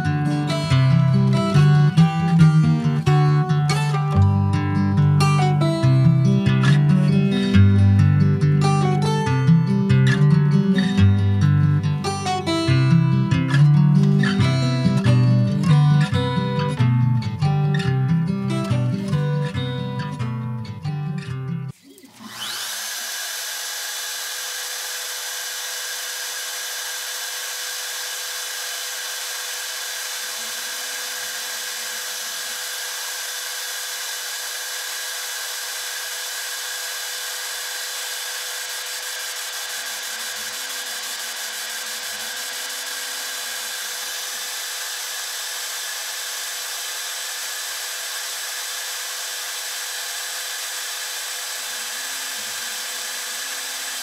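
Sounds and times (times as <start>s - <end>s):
router spindle high whine: 22.1s - 54.0s.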